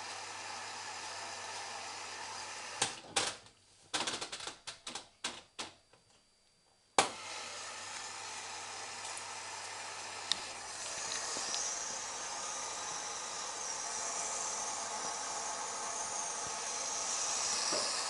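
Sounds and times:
washing machine running: 0.0 - 3.0, 7.1 - 18.0.

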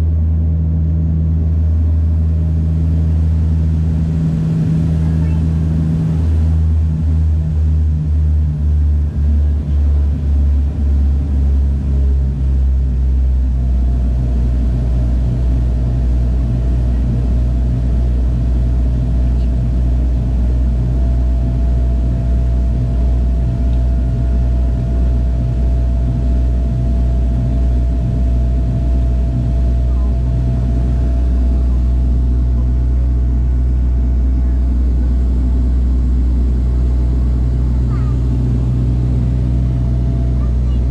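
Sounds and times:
turboprop engine cabin drone: 0.0 - 40.9.

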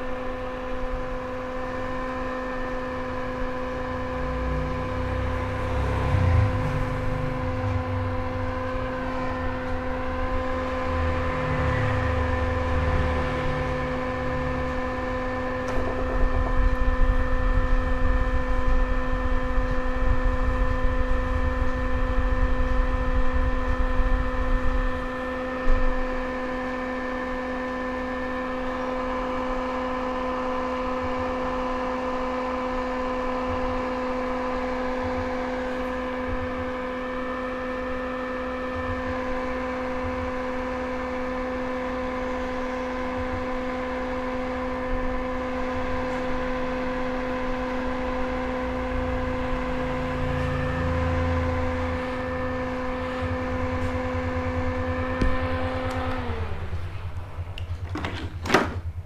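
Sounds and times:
electric blower motor humming: 0.0 - 59.0
low wind-like rumble: 15.2 - 26.2.

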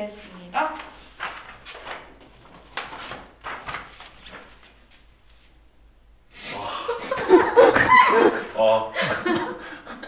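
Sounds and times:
group of people laughing: 6.5 - 10.0.

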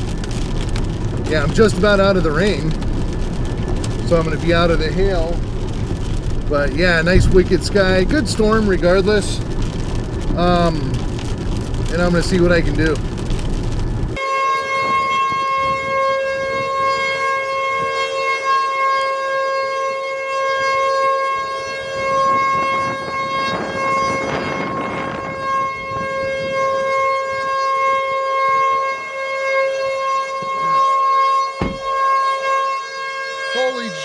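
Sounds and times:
heavy rain: 0.0 - 15.4
warning siren steady tone: 13.2 - 34.0
short knock: 31.6 - 31.9.

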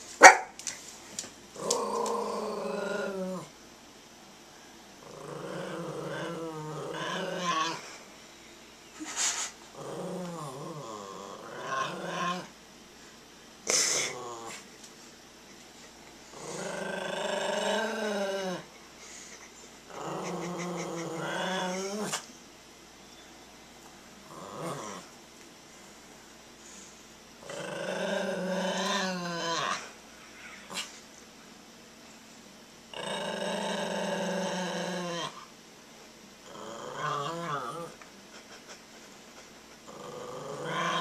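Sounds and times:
small dog growling: 1.6 - 3.5, 5.0 - 8.0, 9.7 - 12.6, 13.9 - 14.7, 16.2 - 22.3, 24.2 - 25.2, 27.4 - 30.9, 32.9 - 35.5, 36.4 - 38.0, 39.8 - 41.0.

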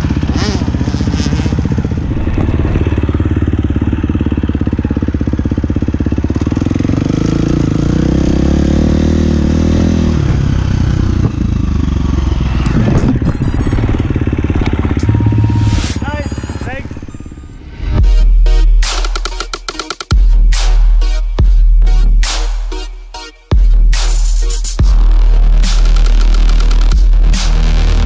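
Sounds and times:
motocross bike engine revving: 0.0 - 16.2.

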